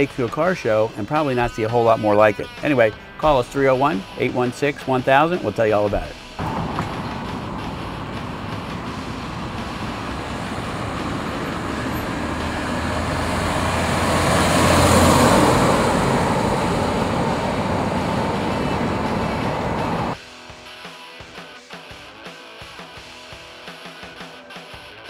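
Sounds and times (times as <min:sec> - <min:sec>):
road traffic noise: 0:05.9 - 0:20.2
car driving past: 0:06.4 - 0:20.2.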